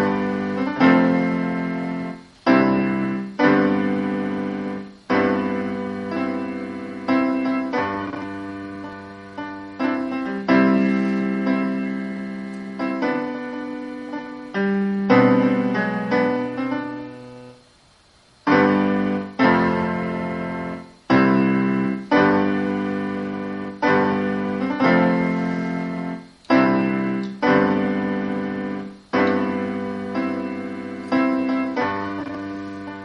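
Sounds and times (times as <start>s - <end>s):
piano chords: 0.0s - 33.0s.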